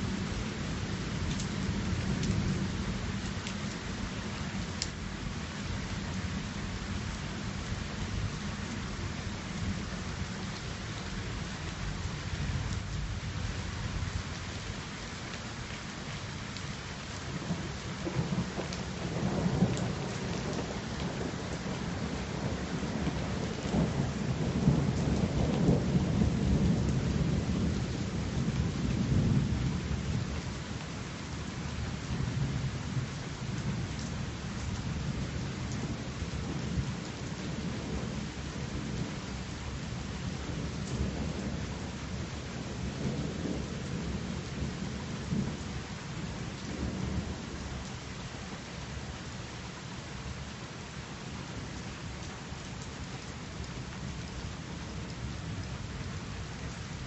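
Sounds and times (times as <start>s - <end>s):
rain falling: 0.0s - 57.0s
thunder rumbling: 17.4s - 30.3s.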